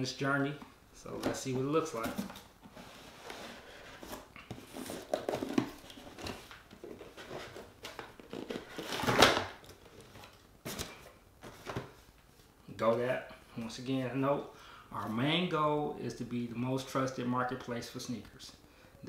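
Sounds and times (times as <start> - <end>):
cardboard box scraping and rustling: 2.0 - 7.7.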